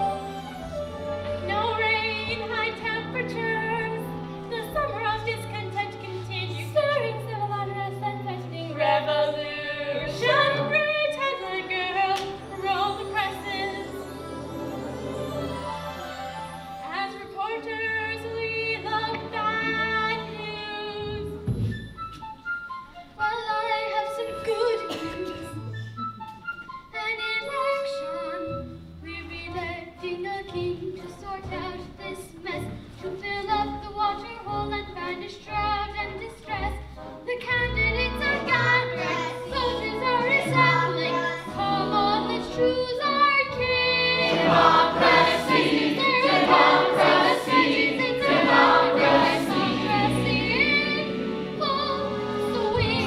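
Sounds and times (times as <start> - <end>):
opera chorus singing: 0.0 - 20.8, 37.6 - 53.0
musical accompaniment: 0.0 - 53.0.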